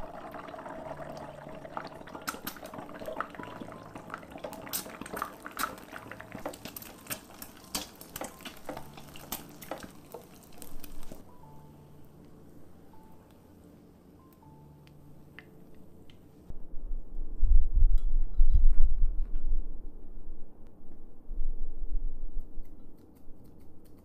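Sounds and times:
egg sizzling in hot oil: 0:00.0 - 0:11.2
oil popping and crackling: 0:00.0 - 0:11.2.

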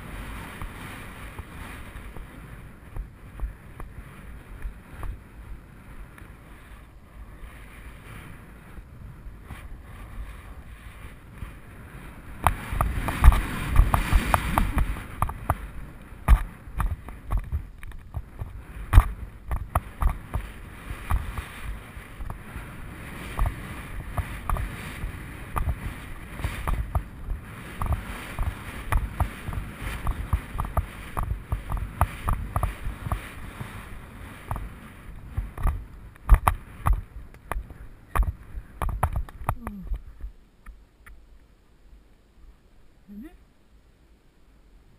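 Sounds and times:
wind on microphone: 0:00.0 - 0:40.8
hoofbeats on turf: 0:12.4 - 0:40.3.

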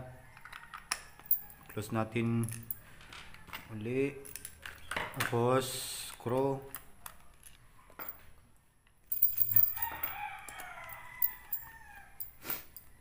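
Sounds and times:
rooster crowing: 0:00.1 - 0:01.8, 0:09.6 - 0:12.4.

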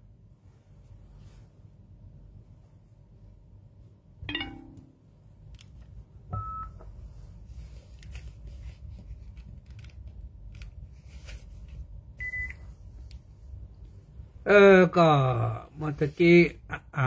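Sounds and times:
light clicks and taps of handling: 0:09.0 - 0:10.8.

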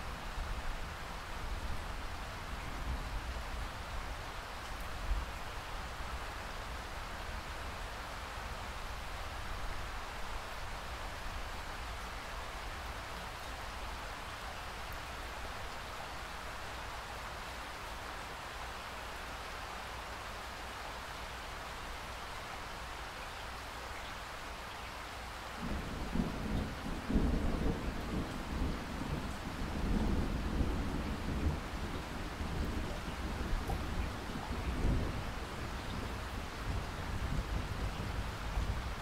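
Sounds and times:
steady rainfall: 0:00.0 - 0:39.0
low thunder rumble: 0:25.6 - 0:39.0.

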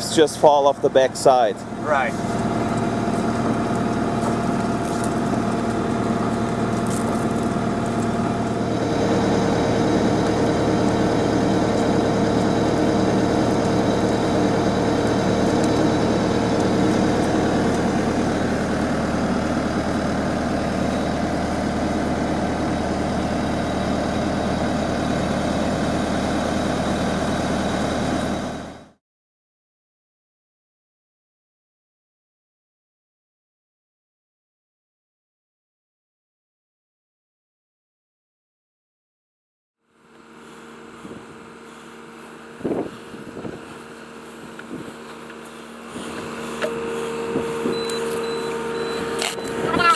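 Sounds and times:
skid loader engine running: 0:00.0 - 0:29.0, 0:39.8 - 0:49.9.

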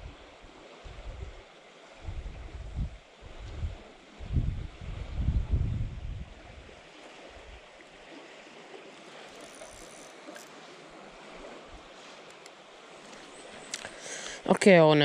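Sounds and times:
wind thumps on microphone: 0:02.0 - 0:06.7
moving water hiss: 0:06.6 - 0:15.0.

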